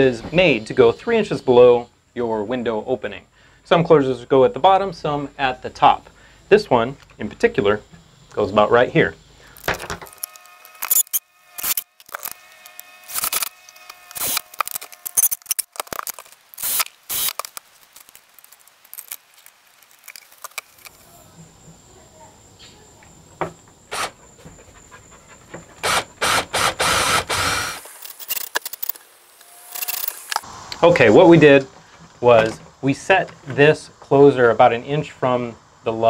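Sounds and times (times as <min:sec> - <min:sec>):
cordless drill drilling metal: 0:09.6 - 0:18.1, 0:23.9 - 0:24.2, 0:25.8 - 0:30.4.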